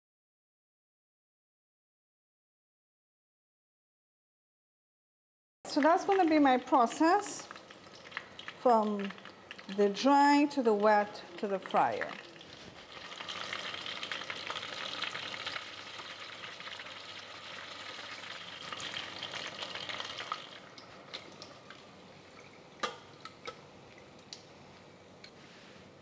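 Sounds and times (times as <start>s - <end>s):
food sizzling in deep fryer: 5.7s - 23.2s.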